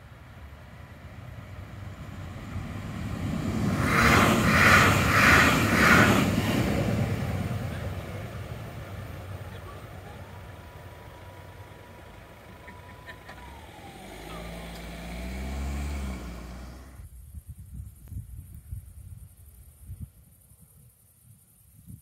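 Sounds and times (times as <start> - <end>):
train passing fast: 0.0 - 17.0
crossing barriers whine: 0.0 - 17.1.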